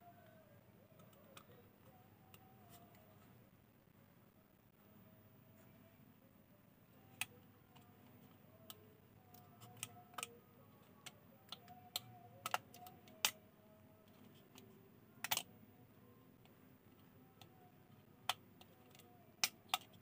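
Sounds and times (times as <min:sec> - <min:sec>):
plastic phone parts clicking: 0:08.6 - 0:13.4, 0:14.0 - 0:15.6, 0:16.4 - 0:20.0.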